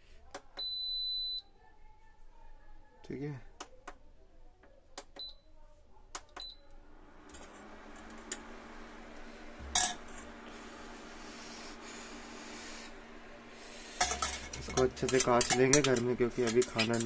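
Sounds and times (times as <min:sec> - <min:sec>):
cooling fan humming: 0:06.4 - 0:17.0
spoon clinking on steel bowl: 0:14.0 - 0:17.0.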